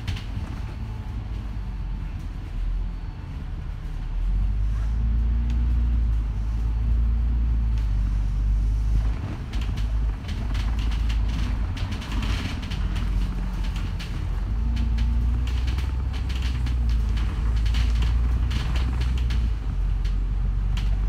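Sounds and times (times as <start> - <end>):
rattles and clicks: 0.0 - 1.5, 8.7 - 21.0
bus diesel engine droning: 0.0 - 21.0.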